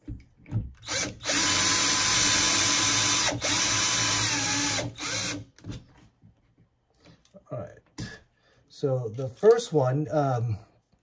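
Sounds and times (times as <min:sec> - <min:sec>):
cordless drill motor whine: 0:00.8 - 0:05.4.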